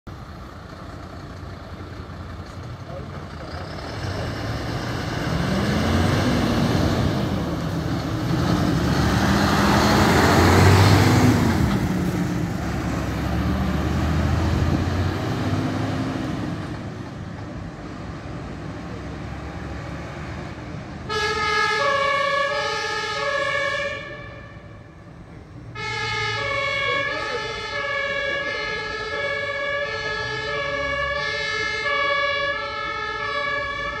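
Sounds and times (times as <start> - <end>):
fire engine diesel engine revving: 0.1 - 24.2, 25.8 - 34.0
two-tone emergency air horn: 21.1 - 24.6, 25.8 - 30.8.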